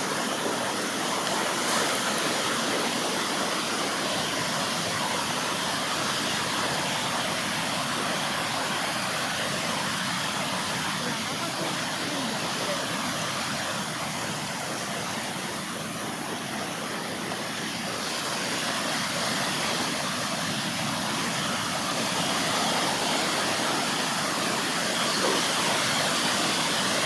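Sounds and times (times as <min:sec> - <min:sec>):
surf washing on beach: 0:00.0 - 0:27.0.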